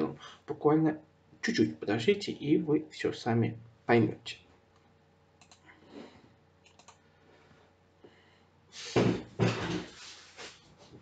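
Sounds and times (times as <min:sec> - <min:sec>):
keyboard and mouse clicks: 0:05.4 - 0:05.6, 0:06.6 - 0:07.0.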